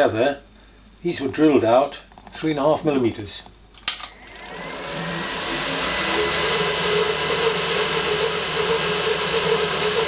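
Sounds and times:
drill press motor running: 4.1s - 10.0s
drill bit cutting brass: 4.2s - 10.0s.

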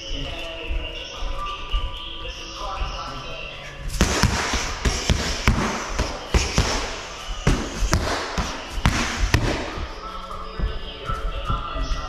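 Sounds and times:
punches and kicks hitting pads: 4.0s - 10.0s.

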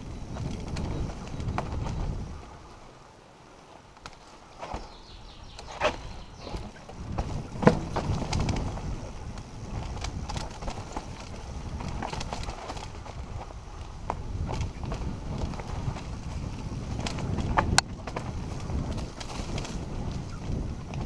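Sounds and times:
wheels knocking on rocks: 0.0s - 2.3s, 4.0s - 21.0s
tyres rumbling over dirt and stones: 4.5s - 21.0s
bike frame and chain rattling: 5.6s - 21.0s.

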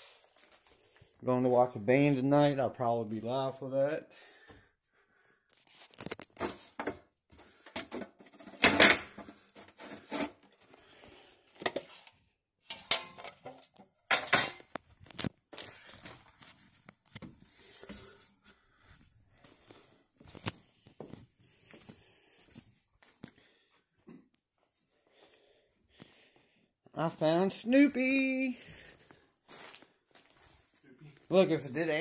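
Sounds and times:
household objects clattering: 7.6s - 10.6s, 12.7s - 14.8s.

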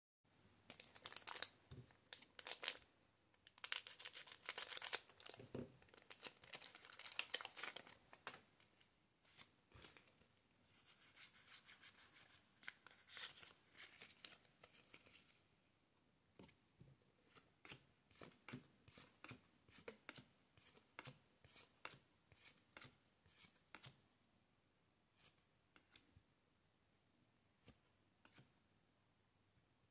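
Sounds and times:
foil wrapper crinkling and tearing: 0.7s - 1.5s, 3.6s - 8.0s.

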